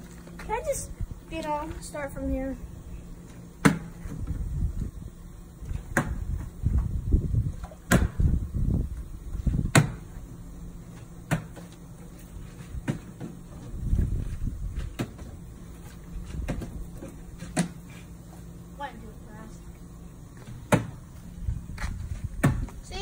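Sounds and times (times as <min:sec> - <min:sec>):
low rumbling noise: 0:00.0 - 0:10.9, 0:18.9 - 0:23.0.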